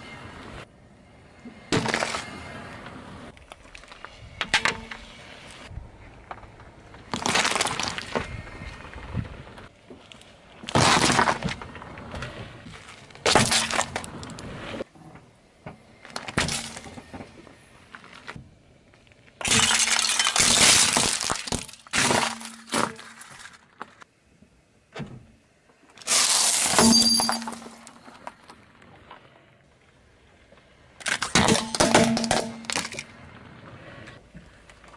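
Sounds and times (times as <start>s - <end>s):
plate breaking: 19.4s - 23.4s, 26.1s - 28.1s, 31.0s - 33.0s.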